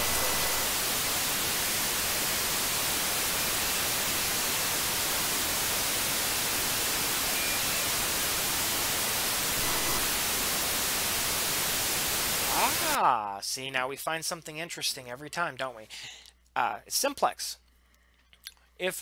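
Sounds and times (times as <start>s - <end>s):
radio static hiss: 0.0s - 13.0s.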